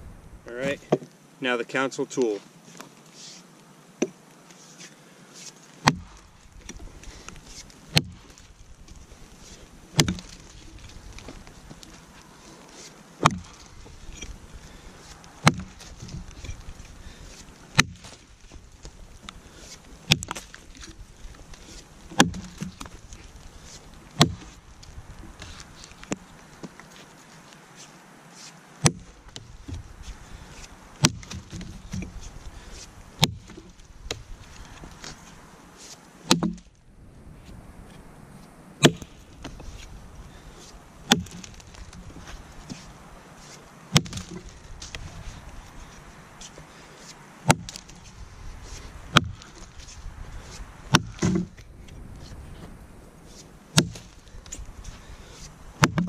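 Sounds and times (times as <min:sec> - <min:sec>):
axe chopping into log: 0:05.8 - 0:06.2, 0:07.9 - 0:08.2, 0:10.0 - 0:10.5, 0:13.2 - 0:13.6, 0:15.4 - 0:16.3, 0:17.8 - 0:18.2, 0:20.1 - 0:20.6, 0:22.2 - 0:22.9, 0:24.2 - 0:24.6, 0:28.8 - 0:29.1, 0:31.0 - 0:32.2, 0:33.2 - 0:34.2, 0:36.3 - 0:36.7, 0:38.8 - 0:39.2, 0:41.1 - 0:41.9, 0:43.9 - 0:44.6, 0:47.5 - 0:47.9, 0:49.1 - 0:49.7, 0:50.9 - 0:51.6, 0:53.8 - 0:54.1, 0:55.8 - 0:56.0.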